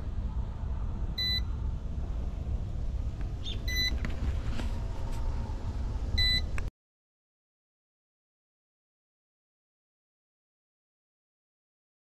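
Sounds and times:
steady low rumble: 0.0 - 6.7
short high electronic beeps: 3.7 - 3.9.

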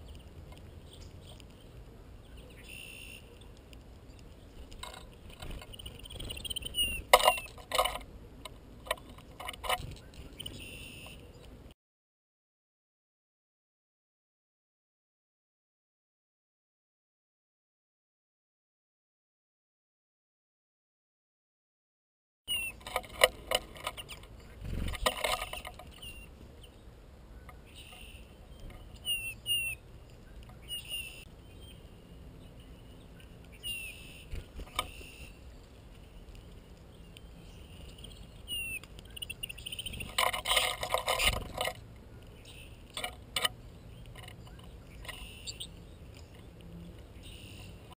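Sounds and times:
songbirds chirping: 0.0 - 11.7, 22.5 - 48.0
rustling and clicking at feeder: 3.2 - 10.6, 22.6 - 26.2, 27.4 - 30.8, 34.3 - 47.9.

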